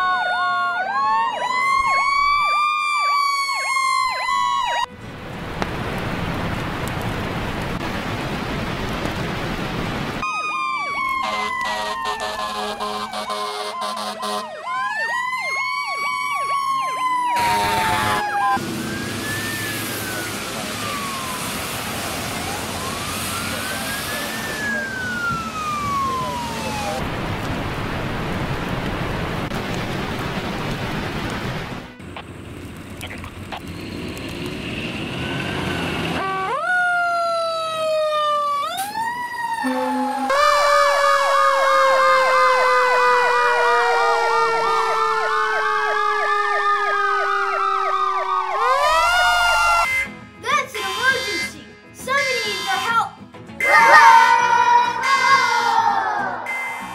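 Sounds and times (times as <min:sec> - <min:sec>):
faint distant siren sweeps: 0:00.0 - 0:05.0, 0:10.2 - 0:27.1, 0:34.6 - 0:50.1, 0:53.6 - 0:56.9
fire engine siren wail: 0:00.0 - 0:05.4, 0:10.2 - 0:27.3, 0:33.6 - 0:50.1, 0:50.8 - 0:51.5, 0:53.6 - 0:56.9
fast yelping siren warble: 0:39.4 - 0:42.1, 0:53.6 - 0:56.9
slowly falling tone: 0:39.5 - 0:42.3.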